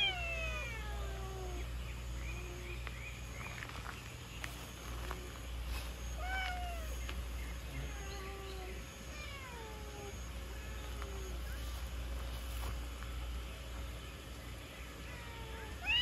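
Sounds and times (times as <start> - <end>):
cats meowing: 0.0 - 1.7, 6.1 - 11.5, 15.0 - 16.0.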